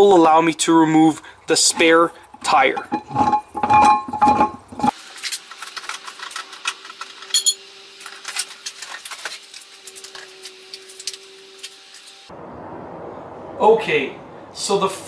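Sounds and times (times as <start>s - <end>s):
metal clinks and knocks: 5.8s - 10.3s.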